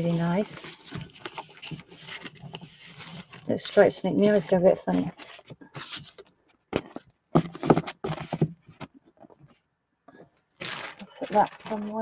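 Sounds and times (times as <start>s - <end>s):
paper rustling and sliding: 0.0s - 8.8s.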